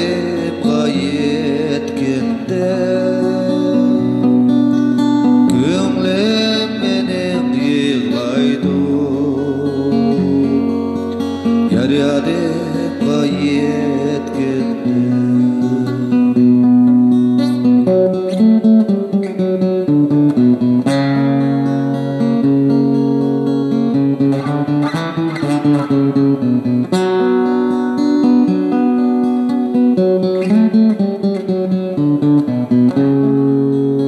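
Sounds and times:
man singing: 0.0 - 4.6, 5.4 - 16.8
strummed acoustic guitar: 0.0 - 34.0.

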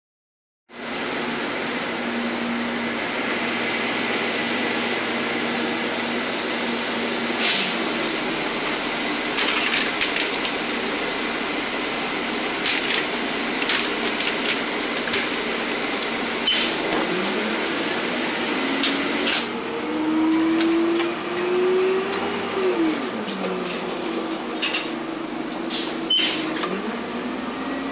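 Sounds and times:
bus engine drone: 0.7 - 27.9
air-conditioning fans rushing: 0.8 - 27.9
bus body rattles and clicks: 8.4 - 11.0, 11.7 - 17.1, 18.8 - 21.2, 21.8 - 26.8.

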